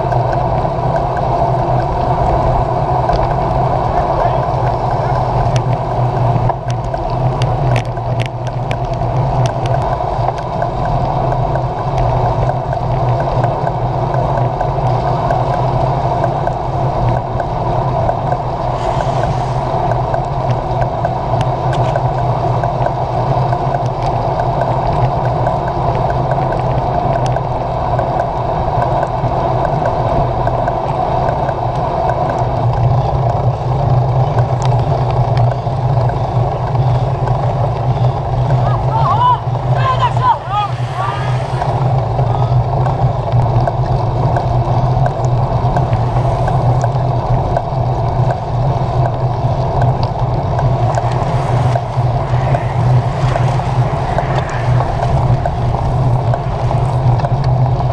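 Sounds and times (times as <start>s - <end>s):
clicks from bumps: 0.0s - 19.1s, 19.7s - 57.9s
road rumble on wet road: 0.0s - 57.9s
wind noise: 0.0s - 57.9s.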